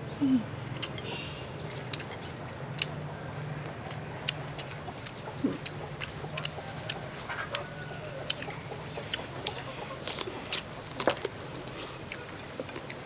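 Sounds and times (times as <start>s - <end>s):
crab shell crunching while chewing: 1.6s - 3.0s, 3.7s - 13.0s.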